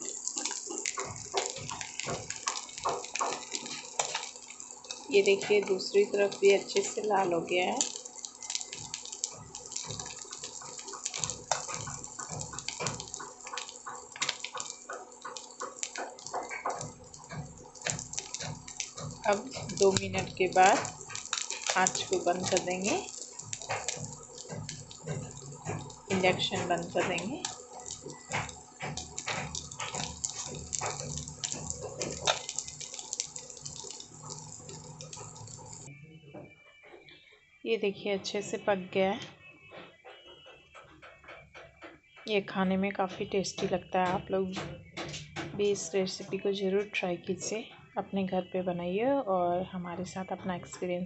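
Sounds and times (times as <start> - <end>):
food sizzling in hot oil: 0.0 - 35.9
oil crackling and popping: 0.0 - 35.9.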